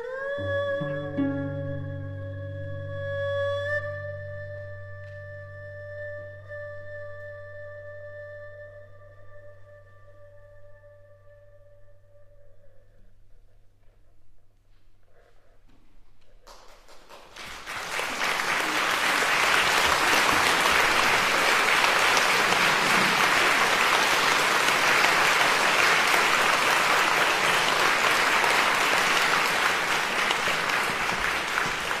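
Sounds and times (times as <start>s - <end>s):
audience applauding: 16.5s - 32.0s.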